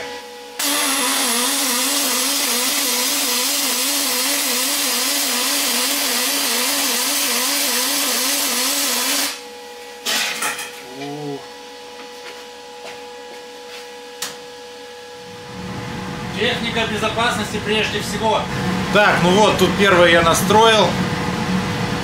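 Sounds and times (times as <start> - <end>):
welding arc hiss: 0.6 - 9.4.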